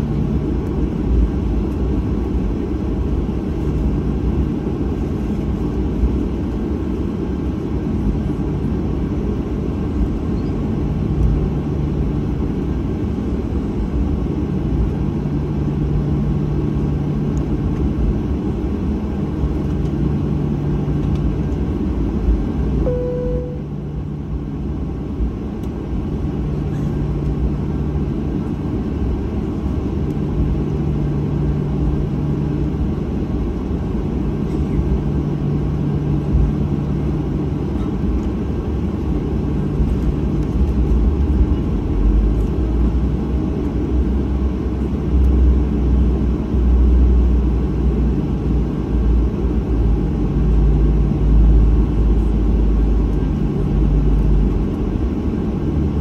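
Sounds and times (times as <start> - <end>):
jet engine cabin rumble: 0.0 - 56.0
short single tone: 22.8 - 23.8.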